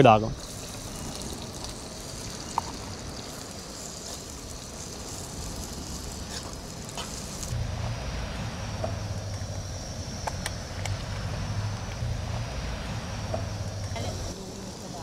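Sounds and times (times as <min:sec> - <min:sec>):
onions sizzling in oil: 0:00.0 - 0:15.0
low steady rumble: 0:04.4 - 0:15.0.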